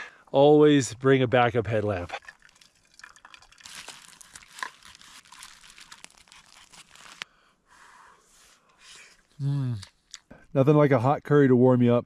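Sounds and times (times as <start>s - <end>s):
food pouch crinkling: 3.0s - 7.2s.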